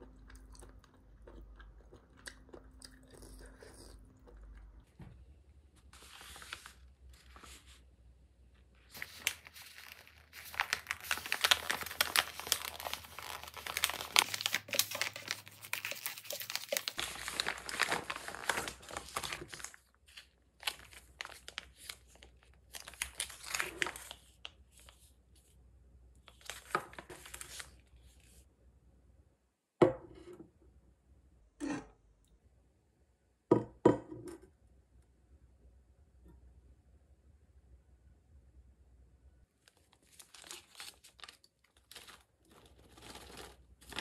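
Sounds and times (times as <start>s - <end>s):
plastic pouch tearing and crinkling: 8.9s - 24.4s, 39.7s - 44.0s
plastic pouches crinkling: 8.9s - 24.4s, 39.6s - 44.0s.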